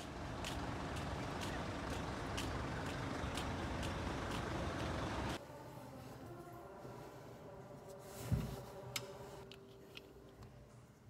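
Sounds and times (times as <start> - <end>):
road traffic rumble: 0.0 - 5.4.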